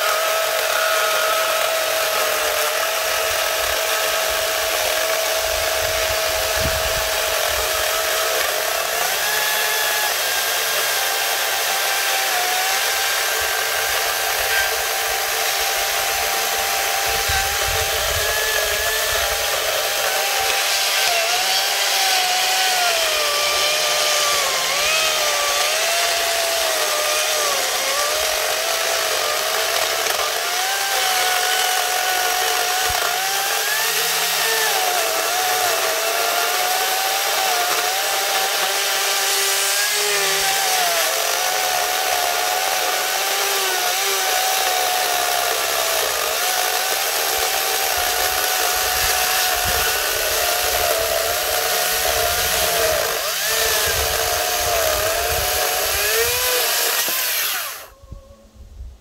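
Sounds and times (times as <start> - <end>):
electric chainsaw cutting wood: 0.0 - 58.0.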